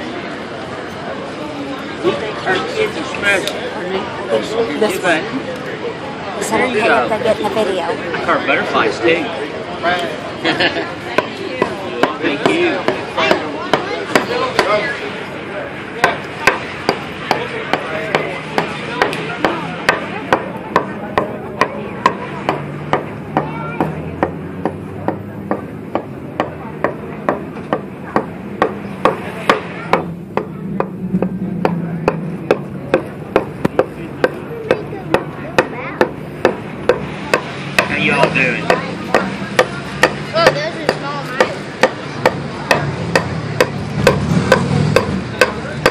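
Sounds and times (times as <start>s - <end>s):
low street hum: 0.0s - 45.9s
adze chopping wood: 16.0s - 45.9s.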